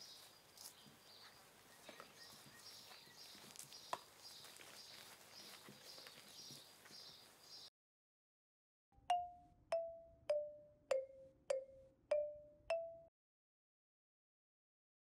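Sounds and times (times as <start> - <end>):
bell-like mallet percussion jingle: 9.1 - 13.1.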